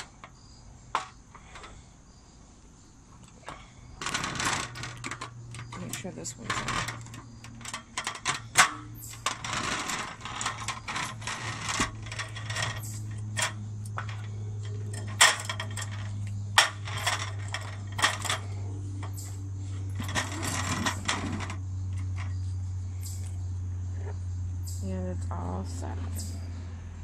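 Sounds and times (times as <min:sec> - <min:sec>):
metal poles clicking and rattling: 0:00.0 - 0:01.9, 0:03.1 - 0:22.4
scraping and rubbing: 0:00.0 - 0:01.9, 0:03.1 - 0:22.6
steady low hum: 0:00.0 - 0:27.0.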